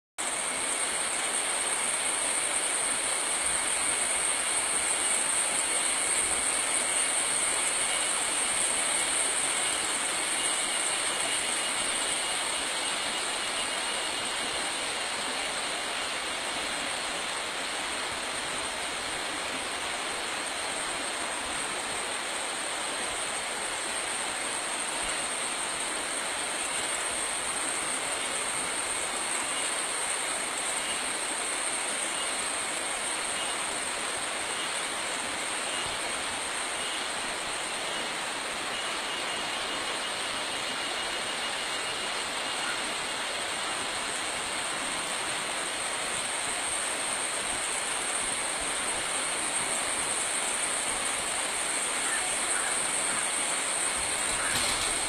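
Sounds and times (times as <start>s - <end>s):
high-pitched whine: 0.2s - 55.0s
steady hiss: 0.2s - 55.0s.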